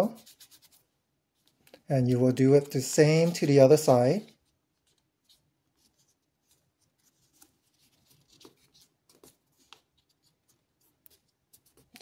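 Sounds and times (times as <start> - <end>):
paper being folded and creased: 0.0 - 12.0.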